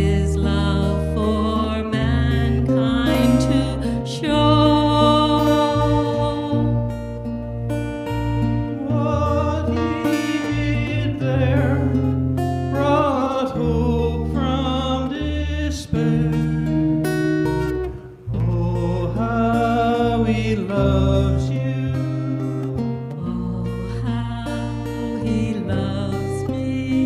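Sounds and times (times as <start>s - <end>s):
man singing: 0.0s - 6.8s, 8.7s - 16.9s, 18.3s - 27.0s
low bass notes: 0.0s - 27.0s
strummed acoustic guitar: 0.0s - 27.0s.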